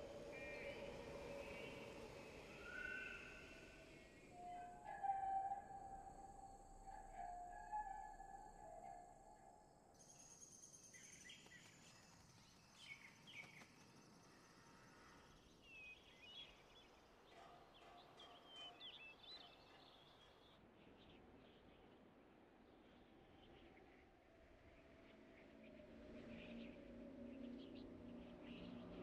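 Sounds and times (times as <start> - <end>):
low ambient hiss: 0.0 - 8.8
faint bird chirps: 0.0 - 20.4.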